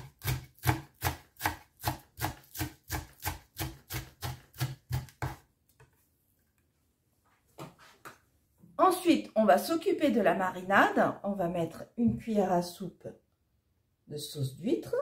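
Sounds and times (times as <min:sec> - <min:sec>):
knife chopping on wooden board: 0:00.0 - 0:05.5.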